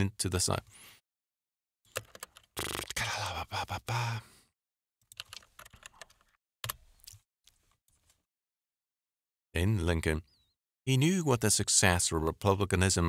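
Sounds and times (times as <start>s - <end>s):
keyboard typing: 1.9s - 3.0s, 5.1s - 7.2s.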